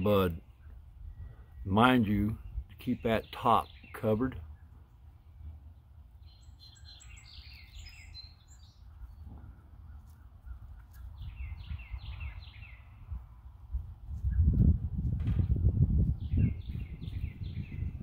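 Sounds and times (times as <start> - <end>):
faint bird chirping: 2.3 - 13.6.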